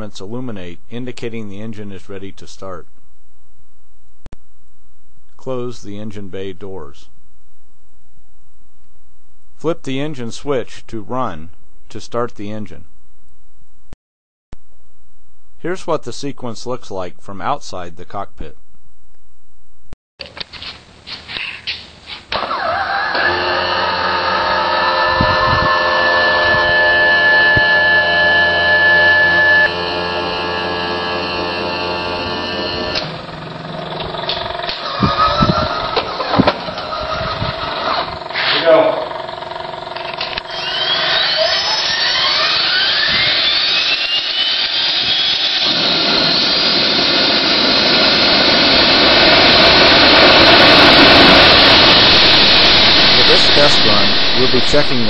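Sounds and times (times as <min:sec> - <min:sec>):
jet engine rushing roar: 0:22.3 - 0:55.0
electric actuator motors whining: 0:22.4 - 0:55.0.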